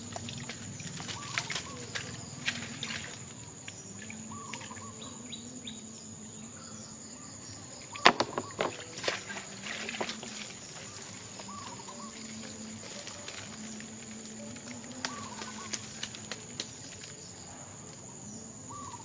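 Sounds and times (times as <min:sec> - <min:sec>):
bird calls: 0:00.0 - 0:19.0
high insect drone: 0:00.0 - 0:19.0
bamboo trap knocking and rattling: 0:08.0 - 0:10.5.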